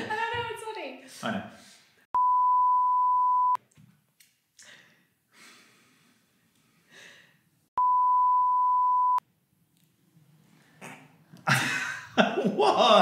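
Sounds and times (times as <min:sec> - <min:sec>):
electronic beep: 0:02.2 - 0:03.6, 0:07.8 - 0:09.2
faint breaths: 0:04.6 - 0:07.5.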